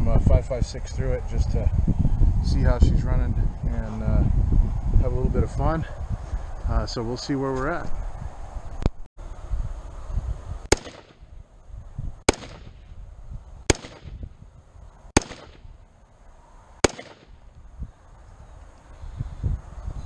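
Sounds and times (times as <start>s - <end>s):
rifle shots with echo: 10.7s - 11.3s, 12.3s - 13.0s, 13.7s - 14.3s, 15.2s - 15.8s, 16.8s - 17.4s.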